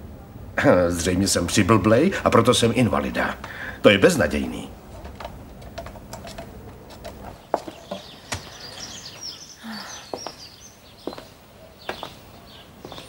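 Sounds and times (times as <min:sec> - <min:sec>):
low outdoor background: 0:00.0 - 0:13.0
birds chirping and twittering: 0:05.1 - 0:13.0.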